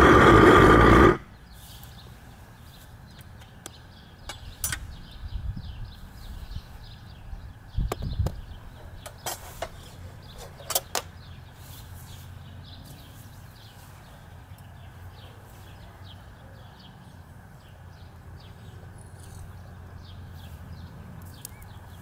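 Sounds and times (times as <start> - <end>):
steady low rumble: 0.0 - 1.5
small birds chirping: 0.0 - 22.0.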